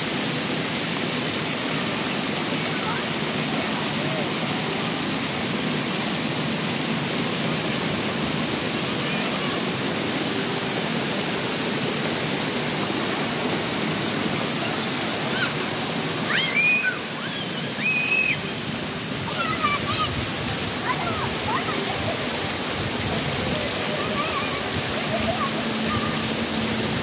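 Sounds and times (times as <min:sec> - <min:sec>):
children squealing: 0:14.6 - 0:20.2, 0:23.4 - 0:26.4.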